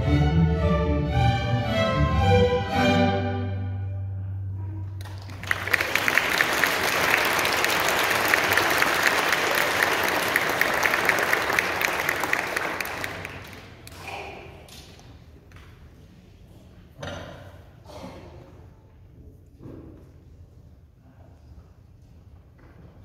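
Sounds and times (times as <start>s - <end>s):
orchestra low note: 0.0s - 5.3s
audience applauding: 5.0s - 14.1s.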